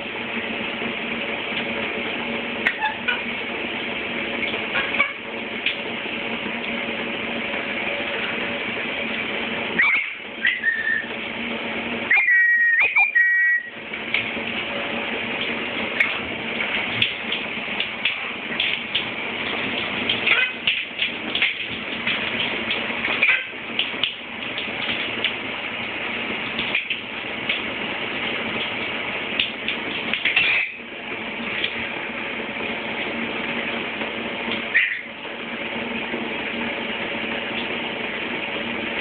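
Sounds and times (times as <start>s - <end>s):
shower water spraying: 0.0s - 39.0s
parrot chirping: 9.8s - 11.1s, 12.1s - 13.7s
brief whistle: 10.4s - 11.1s, 12.1s - 13.7s.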